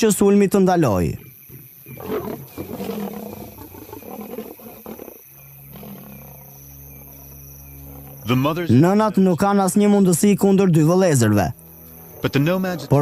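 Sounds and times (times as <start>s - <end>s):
lions growling and snarling: 1.8s - 8.5s
steady low hum: 5.2s - 10.9s.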